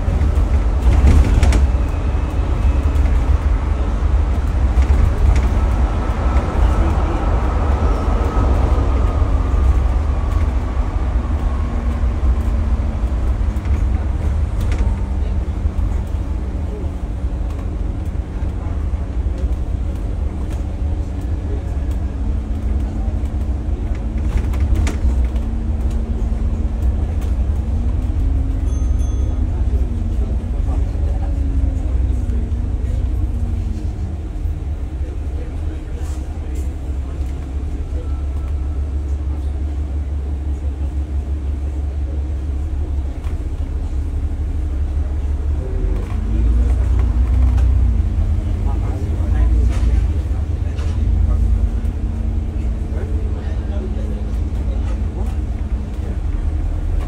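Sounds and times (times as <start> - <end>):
diesel bus engine drone: 0.0 - 57.0
road rumble: 0.0 - 57.0.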